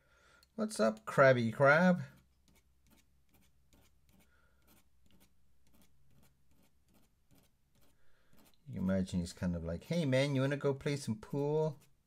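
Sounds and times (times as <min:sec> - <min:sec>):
paintbrush strokes on paper: 0:01.6 - 0:09.4, 0:10.8 - 0:12.0.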